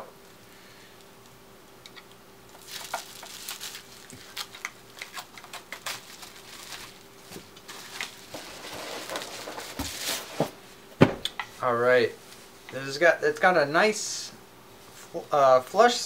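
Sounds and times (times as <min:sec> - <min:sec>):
plastic packaging crinkling: 0:02.0 - 0:10.4
scissors cutting plastic packaging: 0:02.6 - 0:07.0.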